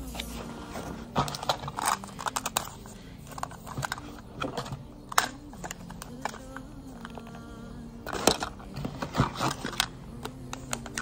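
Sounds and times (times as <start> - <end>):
hands rummaging in cardboard box: 0.0 - 6.4
crinkly plastic packaging rustling: 0.0 - 11.0.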